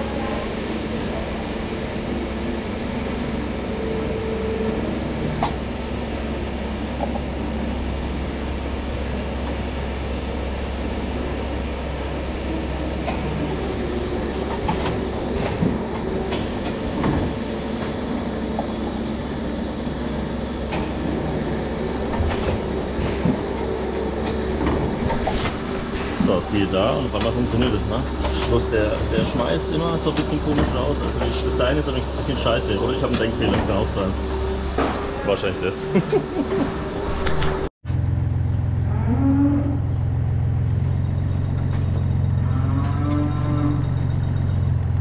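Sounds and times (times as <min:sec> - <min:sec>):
filling machine humming: 0:00.0 - 0:37.7.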